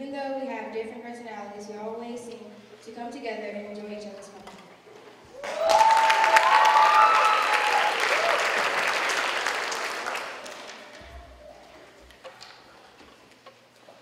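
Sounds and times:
whoops and cheers: 5.4 - 8.7
audience applauding: 5.4 - 11.3.

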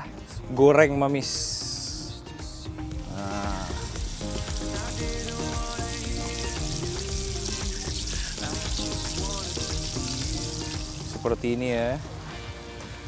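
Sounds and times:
background music: 0.0 - 13.0
chicken deep-frying in hot oil: 2.9 - 12.0.

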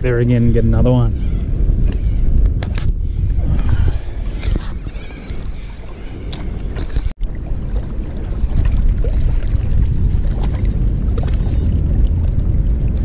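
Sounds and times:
wind on microphone: 0.0 - 13.0
water lapping on rocks: 3.5 - 13.0.

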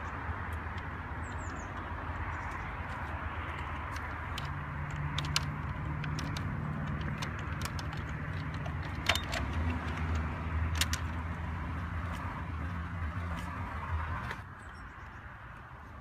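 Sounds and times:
plastic winch clicks: 3.6 - 11.3.

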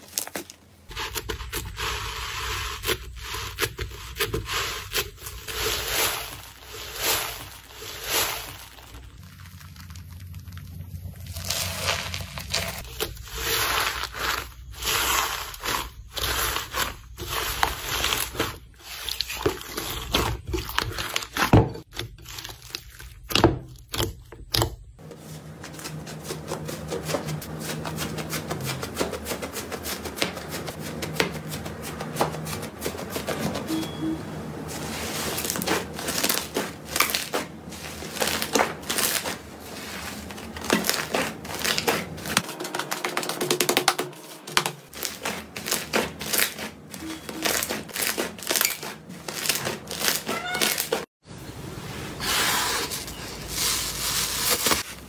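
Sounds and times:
crunching foam beads in slime: 0.0 - 24.9, 34.9 - 43.5
sticky slime crackling: 2.9 - 24.9.

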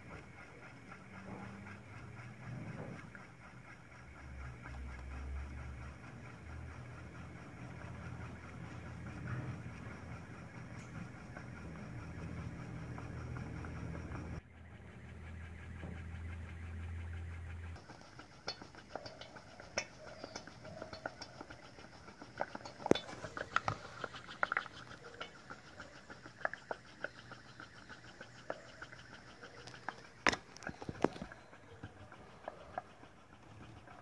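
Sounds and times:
pop-pop steam engine ticking: 0.0 - 34.0.

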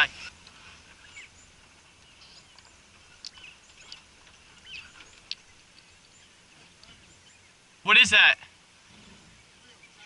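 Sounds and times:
quail chirps and squeaky calls: 0.0 - 7.5
sharp ticks: 2.0 - 5.9.

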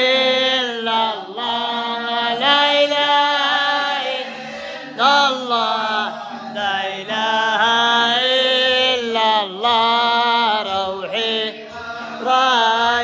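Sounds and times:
men chanting: 0.0 - 13.0.

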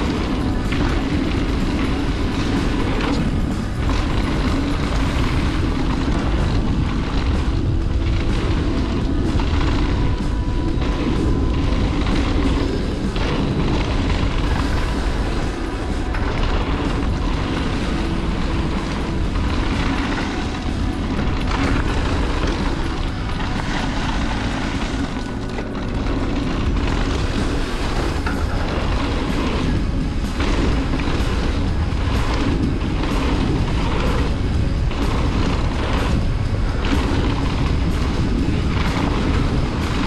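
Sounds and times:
bike tyres rolling on dirt: 0.0 - 40.0
wind buffeting microphone: 0.0 - 40.0.

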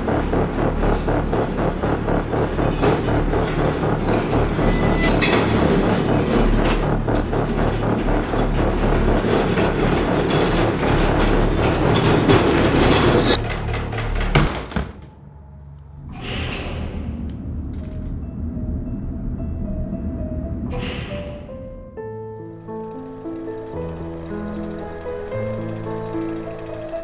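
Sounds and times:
hand cart rattling on concrete: 1.8 - 14.5.

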